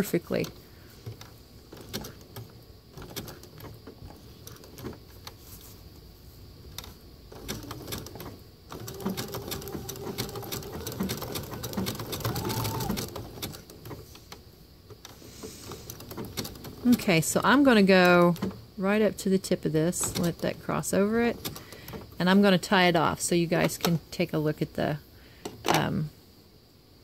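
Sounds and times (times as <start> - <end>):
sewing machine needle clicking: 0.3 - 5.4, 6.7 - 17.0, 21.3 - 22.2
sewing machine motor whine: 7.4 - 13.7.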